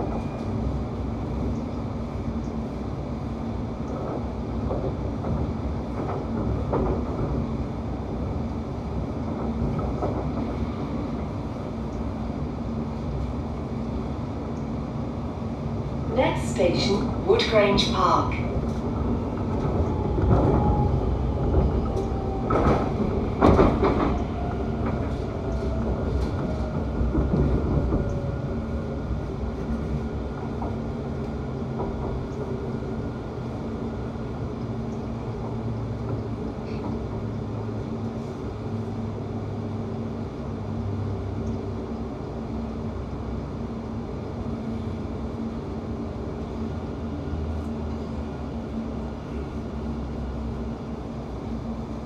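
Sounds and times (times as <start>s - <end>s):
electric train humming and whining: 0.0s - 52.0s
wheels clacking on rails: 3.8s - 12.1s, 16.1s - 40.1s.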